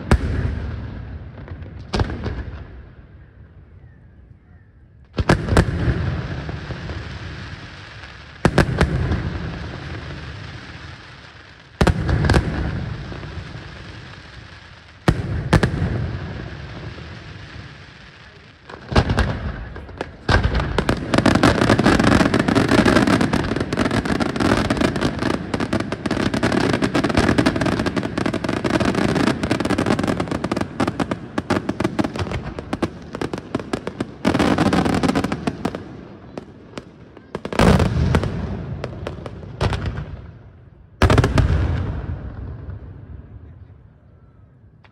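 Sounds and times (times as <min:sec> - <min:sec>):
fireworks bursting: 0:00.0 - 0:03.2, 0:05.1 - 0:43.6
barrage of rapid bangs and crackle: 0:18.6 - 0:35.8.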